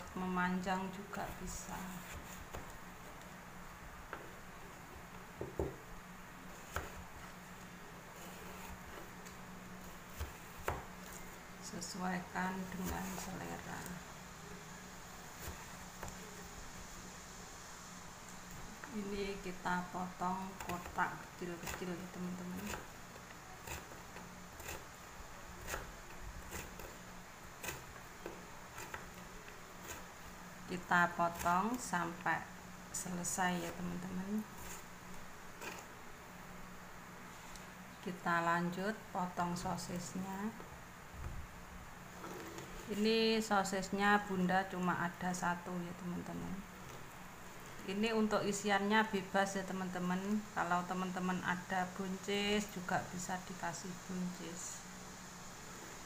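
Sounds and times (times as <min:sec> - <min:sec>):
faint steady hum: 0:00.0 - 0:56.0
knife slicing carrot on board: 0:25.6 - 0:27.0, 0:35.6 - 0:35.9.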